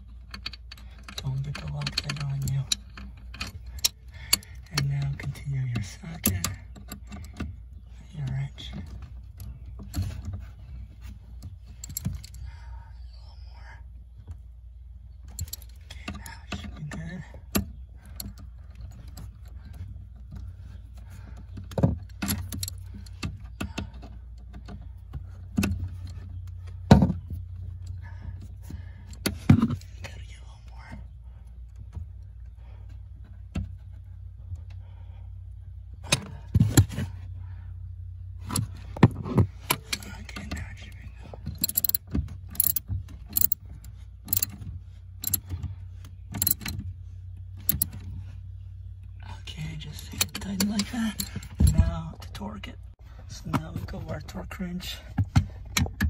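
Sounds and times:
steady low hum: 0.0s - 56.0s
ratchet and socket clinking: 41.5s - 43.6s, 44.3s - 44.6s, 45.2s - 45.5s, 46.3s - 46.8s, 47.6s - 48.0s.

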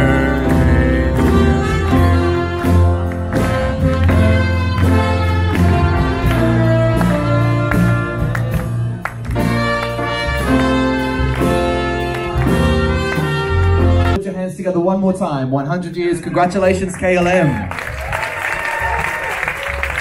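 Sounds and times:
live band playing upbeat music: 0.0s - 14.2s.

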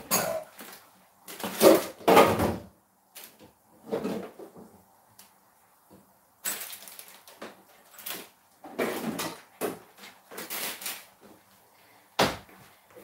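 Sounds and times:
cupboards and drawers knocking: 1.5s - 2.7s.

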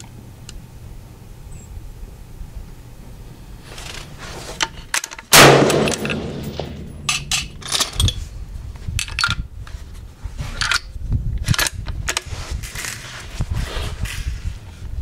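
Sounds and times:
rifle bolt metallic clicks: 5.0s - 8.2s
wind rumble on microphone: 6.9s - 15.0s.

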